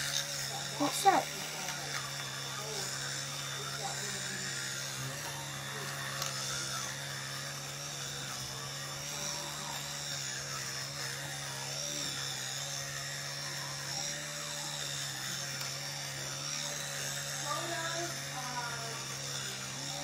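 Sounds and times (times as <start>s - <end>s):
electric toothbrush buzzing: 0.0s - 20.0s.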